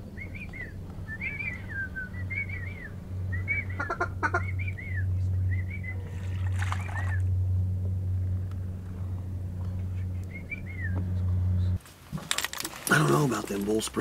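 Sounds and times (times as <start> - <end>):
steady low hum: 0.0 - 12.1
whistled duck calls: 0.2 - 7.3, 10.2 - 11.0.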